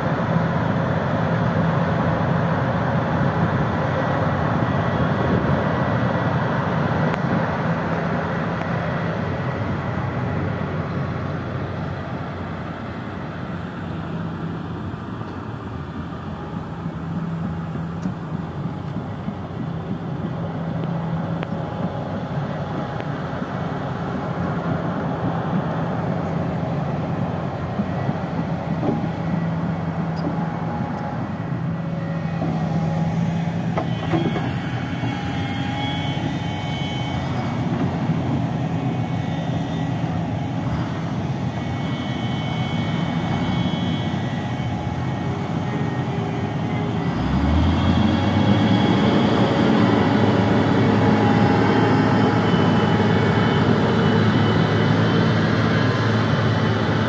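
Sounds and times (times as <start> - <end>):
heavy diesel engines under load: 0.0 - 57.0
engine revving: 46.6 - 57.0.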